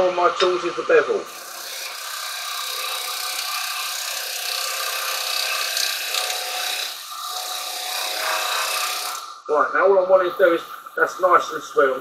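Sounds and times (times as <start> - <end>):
lathe tool scraping wood: 0.0 - 9.4.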